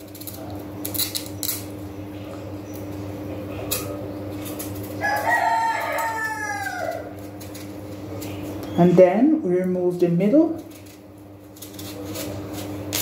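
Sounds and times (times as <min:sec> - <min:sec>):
rooster crowing: 0:04.9 - 0:07.3
knife scraping pumpkin skin: 0:10.6 - 0:13.0.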